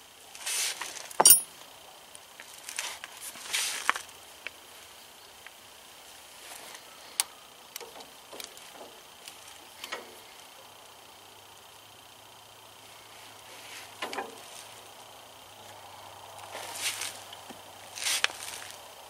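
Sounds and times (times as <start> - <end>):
rustling scrapes: 0.4 - 1.2, 2.7 - 4.0, 16.5 - 17.2, 17.9 - 18.8
metal parts clinking: 1.2 - 1.5.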